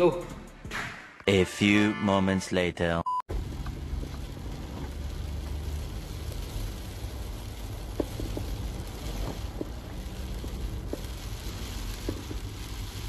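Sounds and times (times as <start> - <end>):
rain on windscreen: 3.3 - 13.0
vehicle driving on wet road: 3.3 - 13.0.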